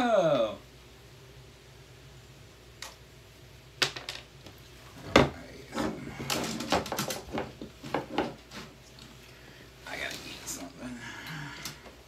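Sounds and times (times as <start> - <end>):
hard objects knocking and clattering: 3.8 - 4.3, 5.0 - 8.6.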